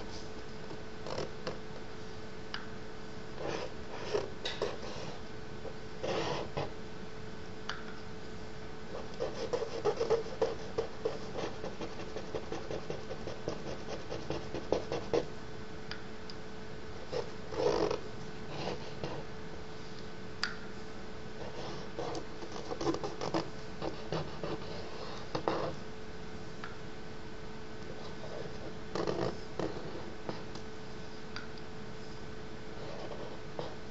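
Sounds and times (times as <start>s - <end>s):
faint steady hum: 0.0s - 33.9s
stick scratching across paper: 3.4s - 5.2s, 6.0s - 6.7s, 9.0s - 15.3s, 21.5s - 25.8s.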